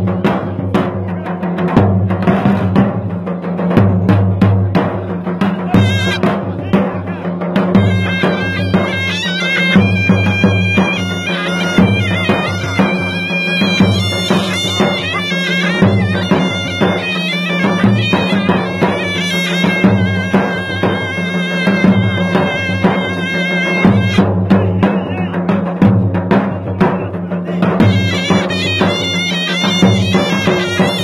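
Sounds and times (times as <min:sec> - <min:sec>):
large drums beating: 0:00.0 - 0:31.0
shawm playing reedy melody: 0:05.4 - 0:25.7, 0:27.4 - 0:31.0.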